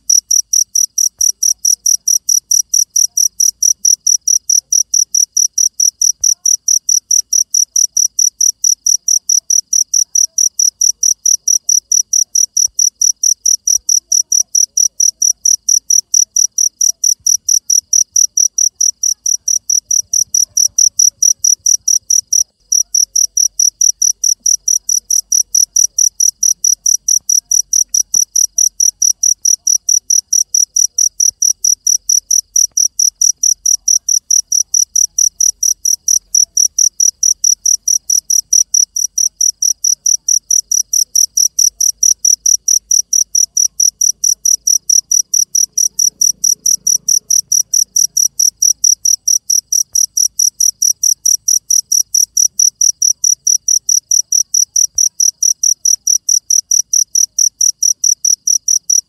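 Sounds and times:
cricket chirping: 0:00.0 - 0:59.0.

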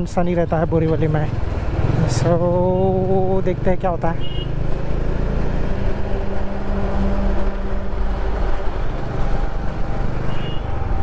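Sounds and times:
motorcycle engine humming: 0:00.0 - 0:11.0.

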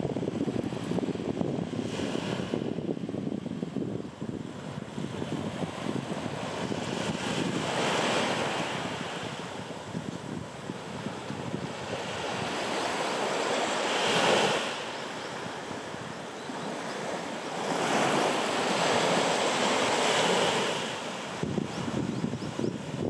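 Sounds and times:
sea waves washing up beach: 0:00.0 - 0:23.0
wind on microphone: 0:00.0 - 0:23.0.

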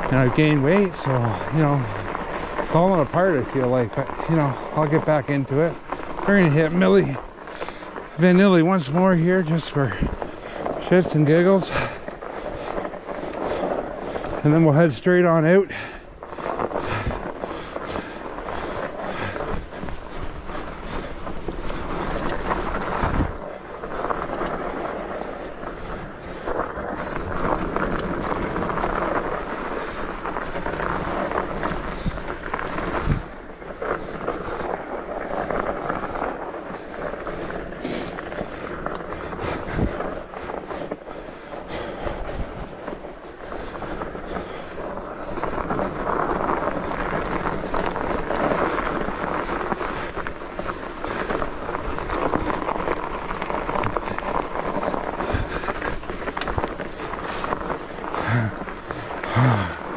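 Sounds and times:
bike tyres rolling through snow: 0:00.0 - 0:59.9
wind on microphone: 0:16.3 - 0:59.8.

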